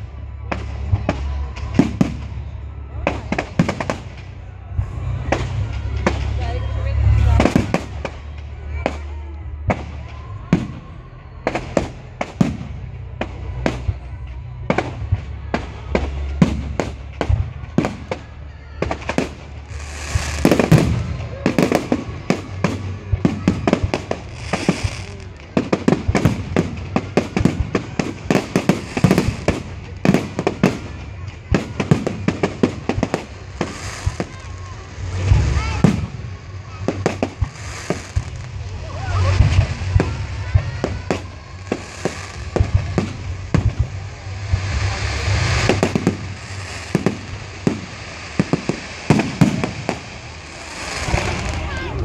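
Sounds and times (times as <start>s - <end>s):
fireworks bursting bangs: 0.0s - 52.0s.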